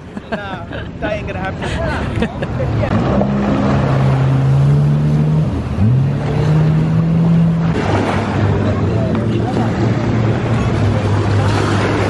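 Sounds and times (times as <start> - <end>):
water rushing and spraying: 1.1 - 12.0
jet ski engine revving: 2.6 - 12.0.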